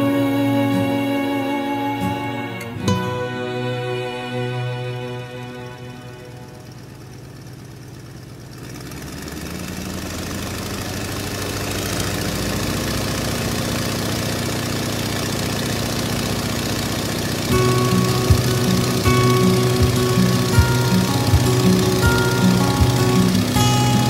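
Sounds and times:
airliner engines droning: 0:00.0 - 0:08.4, 0:17.0 - 0:24.0.

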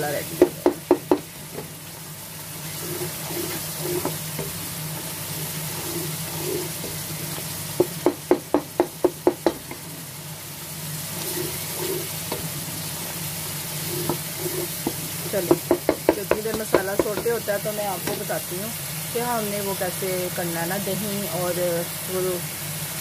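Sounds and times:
masala sizzling in oil: 0:00.0 - 0:23.0
spatula knocking against pan: 0:00.4 - 0:01.3, 0:07.8 - 0:09.8, 0:14.0 - 0:17.4
wooden spatula scraping pan: 0:02.6 - 0:04.6, 0:05.3 - 0:07.4, 0:11.0 - 0:12.5, 0:13.6 - 0:18.4.

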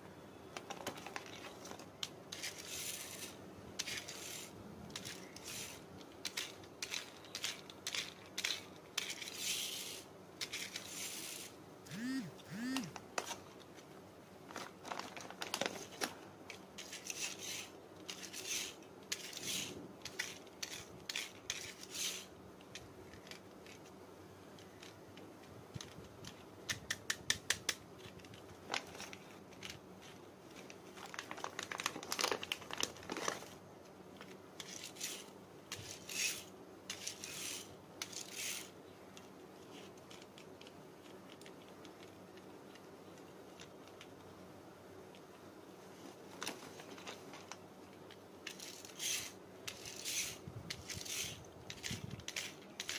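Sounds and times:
plastic bag crinkling and rustling: 0:00.6 - 0:09.4, 0:13.2 - 0:18.5, 0:28.0 - 0:36.2, 0:45.9 - 0:49.0.

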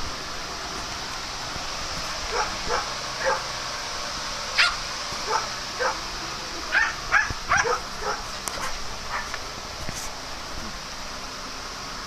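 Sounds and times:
dogs barking and yipping: 0:02.3 - 0:03.6, 0:04.6 - 0:06.1, 0:06.7 - 0:09.4.

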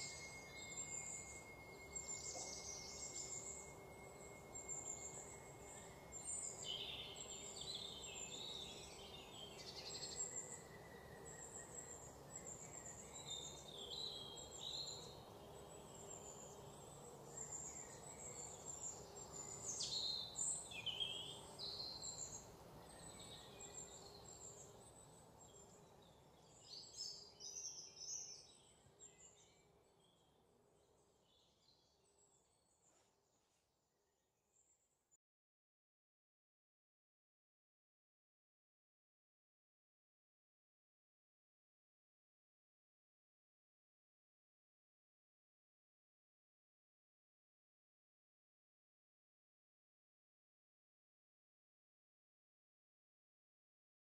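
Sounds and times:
low steady hiss: 0:00.0 - 0:34.9
faint birdsong: 0:00.0 - 0:35.2.

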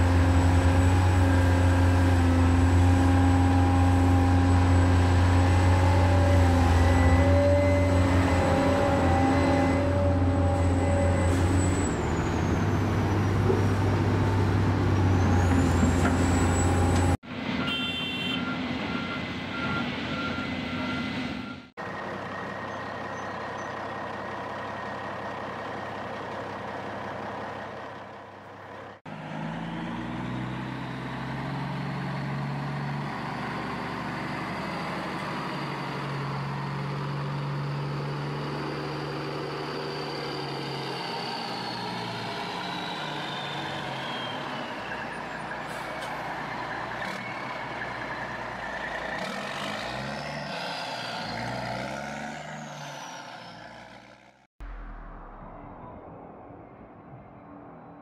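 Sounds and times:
heavy vehicle engine running: 0:18.6 - 0:50.4, 0:53.6 - 0:57.9
high whine falling in pitch: 0:54.6 - 0:58.0.

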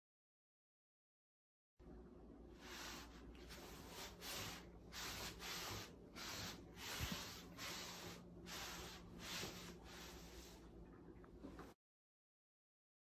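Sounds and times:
towel rubbing on wet tiled floor: 0:02.6 - 0:10.8.

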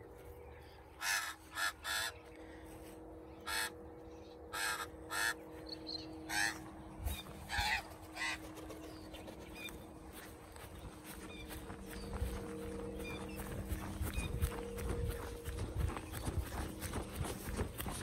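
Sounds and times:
magpies harsh calls: 0:01.0 - 0:02.4, 0:03.4 - 0:03.8, 0:04.5 - 0:09.8.

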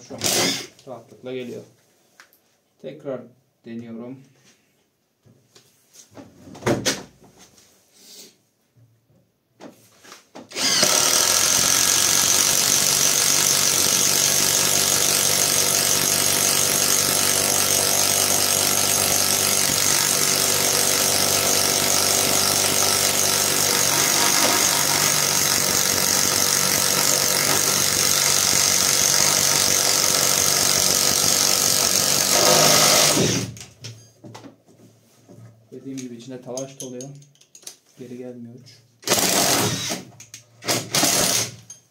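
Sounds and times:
impact wrench boring into wood: 0:00.2 - 0:00.7, 0:10.5 - 0:33.6, 0:39.0 - 0:41.7.

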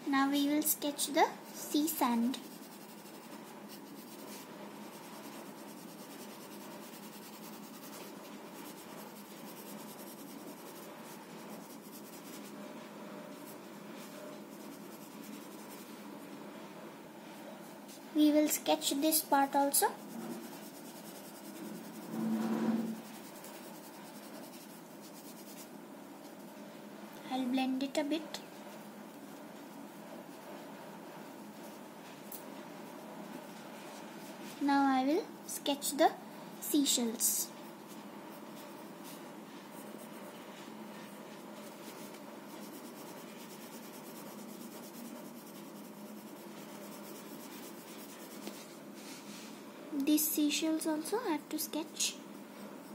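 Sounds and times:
pencil scratching on paper: 0:01.5 - 0:16.2, 0:18.8 - 0:25.7, 0:36.7 - 0:48.8.

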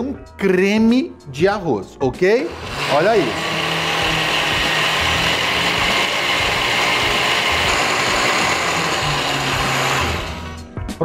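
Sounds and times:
blender running: 0:02.4 - 0:10.7.

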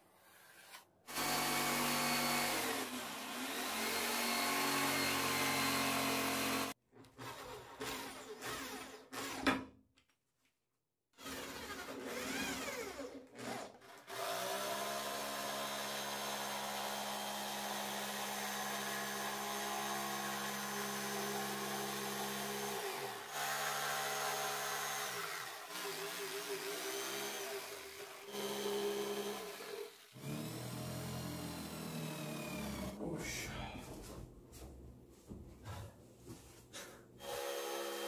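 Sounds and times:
jigsaw cutting wood: 0:00.3 - 0:09.7, 0:11.2 - 0:33.0, 0:37.2 - 0:38.0
cordless drill driving screws: 0:11.2 - 0:16.4, 0:19.8 - 0:32.9, 0:37.2 - 0:38.0.

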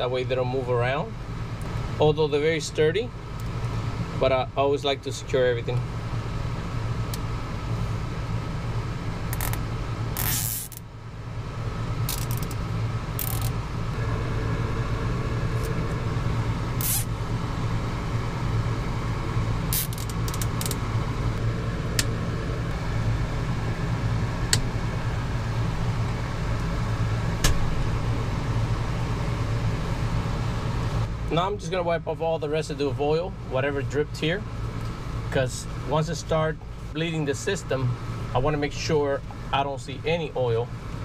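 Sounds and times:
low machine hum: 0:00.0 - 0:41.0
zip ties zipping and clicking: 0:10.2 - 0:10.8, 0:12.1 - 0:12.6, 0:13.2 - 0:13.5, 0:16.8 - 0:17.1, 0:19.8 - 0:20.8.

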